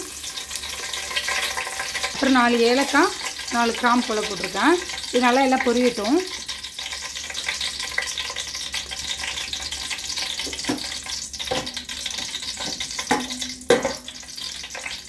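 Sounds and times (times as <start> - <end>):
spices sizzling in hot oil: 0.0 - 15.0
metal spoon knocking against pot: 12.6 - 14.1.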